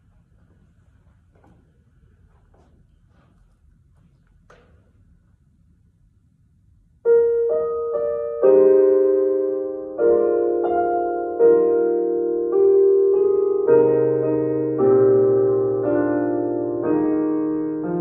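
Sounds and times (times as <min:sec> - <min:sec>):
grand piano playing slow chords: 0:07.0 - 0:18.0.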